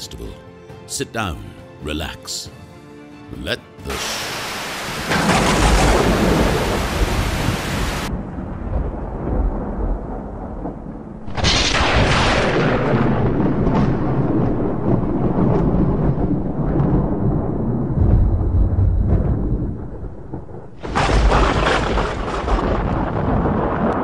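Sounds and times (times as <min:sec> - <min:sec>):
static hiss: 0:03.8 - 0:08.1
low rumble: 0:05.2 - 0:24.0.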